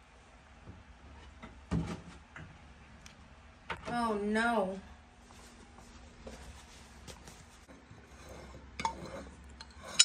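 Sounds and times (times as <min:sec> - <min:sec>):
metal spoon scraping glass dish: 0:08.1 - 0:10.0.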